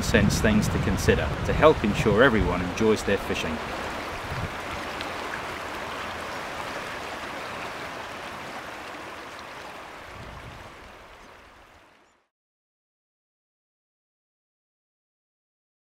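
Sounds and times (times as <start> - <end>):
river water flowing: 0.8 - 12.2.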